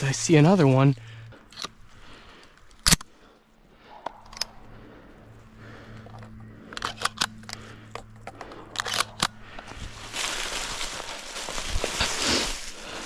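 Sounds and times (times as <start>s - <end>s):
shotgun shells loading clicks: 1.4s - 1.8s, 2.4s - 3.1s, 4.0s - 4.6s, 6.0s - 9.6s
footsteps in dry leaves: 9.4s - 13.0s.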